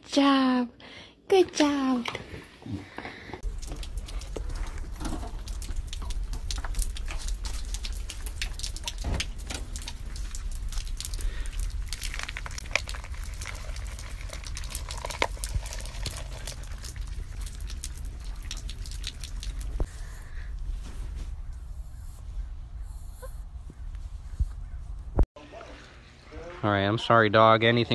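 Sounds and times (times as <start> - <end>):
rain pattering and dripping: 3.4 - 20.0
low rumble: 3.4 - 25.2.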